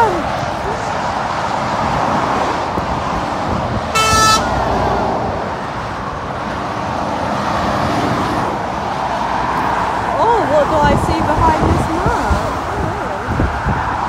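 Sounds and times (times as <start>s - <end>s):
traffic rushing: 0.0s - 14.0s
vehicle horn toot: 3.9s - 4.6s.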